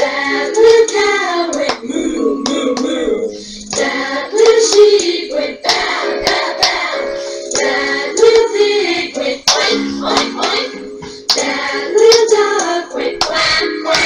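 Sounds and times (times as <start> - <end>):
woman singing unaccompanied: 0.0 - 5.5
sharp hand claps: 9.5 - 10.6.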